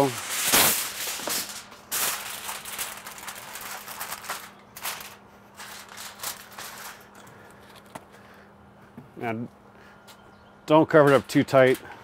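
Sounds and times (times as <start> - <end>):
aluminum foil crinkling: 0.0 - 7.9.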